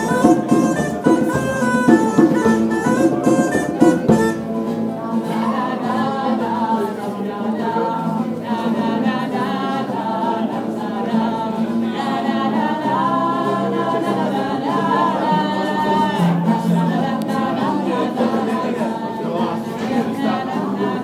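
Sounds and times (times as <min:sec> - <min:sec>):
live band performing: 0:00.0 - 0:05.5
voices singing together: 0:00.0 - 0:21.0.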